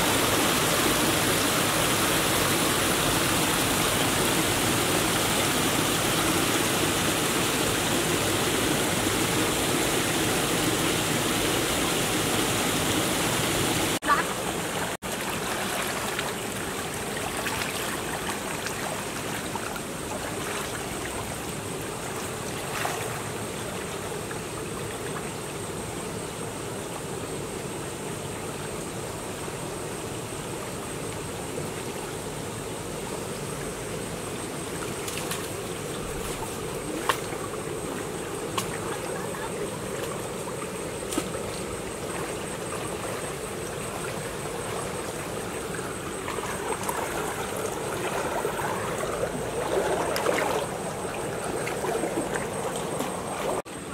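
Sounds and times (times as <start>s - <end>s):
stream water sloshing: 0.0s - 25.5s, 31.4s - 53.9s.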